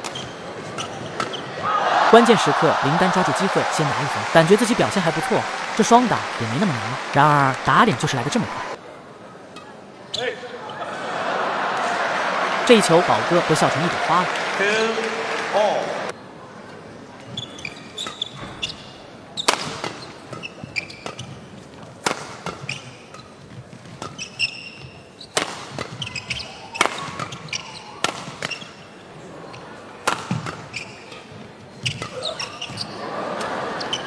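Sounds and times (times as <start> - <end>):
shoes squeaking on court: 0.0 - 1.6, 17.2 - 33.0, 33.8 - 34.0
rackets hitting shuttlecock: 25.3 - 28.6, 30.0 - 31.3.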